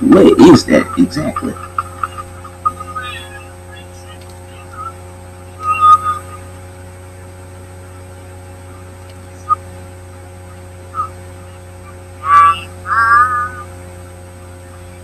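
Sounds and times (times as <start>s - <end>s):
electrical hum: 0.0s - 15.0s
click: 4.2s - 4.4s, 9.0s - 9.2s
loud high-pitched cry: 5.6s - 6.5s, 12.2s - 13.7s.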